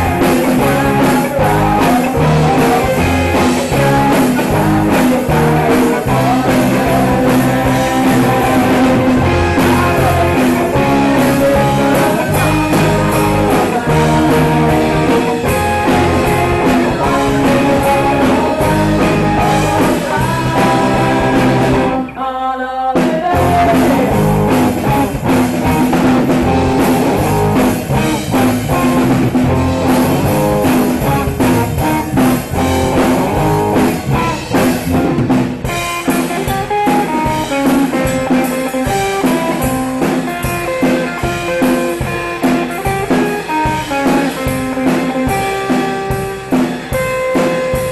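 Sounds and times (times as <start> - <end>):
drum kit: 0.0 - 22.1, 23.0 - 47.9
person singing: 0.0 - 32.0
electric guitars: 0.0 - 47.9.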